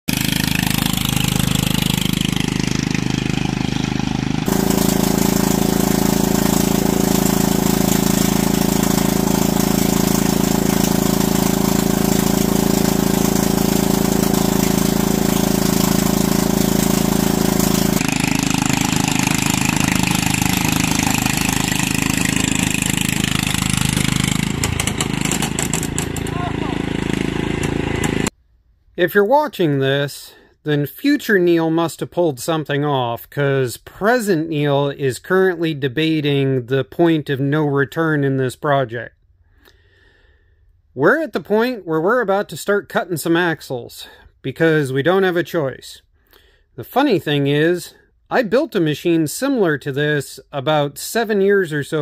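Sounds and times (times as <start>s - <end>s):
lawn tractor engine running: 0.1s - 28.4s.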